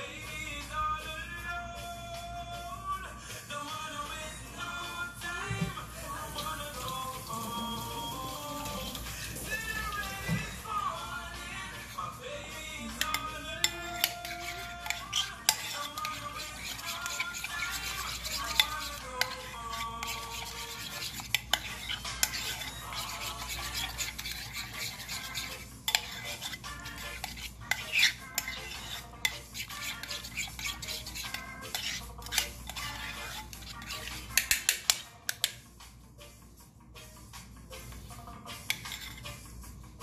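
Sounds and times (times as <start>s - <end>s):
fork clinking against ceramic bowl: 12.9s - 35.6s, 38.7s - 39.2s.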